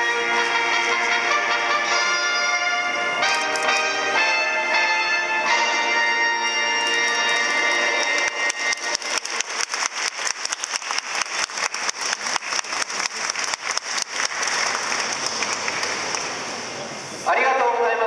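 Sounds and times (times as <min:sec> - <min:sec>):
crowd applauding: 0:06.4 - 0:16.9
nearby hands clapping sharply: 0:06.8 - 0:16.4.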